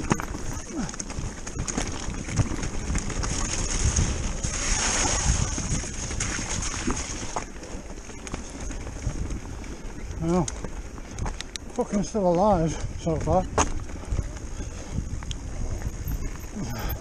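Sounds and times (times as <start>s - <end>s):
wind on microphone: 0.0s - 7.5s, 8.6s - 11.5s, 12.6s - 17.0s
bike brushing through vegetation: 0.0s - 10.1s
bike knocks and rattles: 0.0s - 16.7s.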